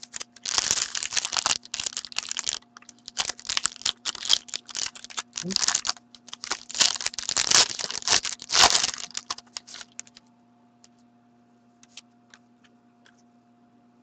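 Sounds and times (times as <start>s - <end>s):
foil wrapper tearing and crinkling: 0.0s - 10.2s
low steady hum: 0.0s - 14.0s.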